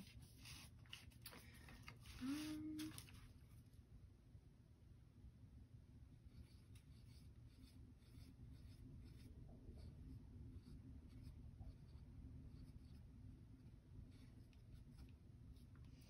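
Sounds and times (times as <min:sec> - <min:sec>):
pencil scratching on paper: 0:00.0 - 0:01.2, 0:06.2 - 0:16.0.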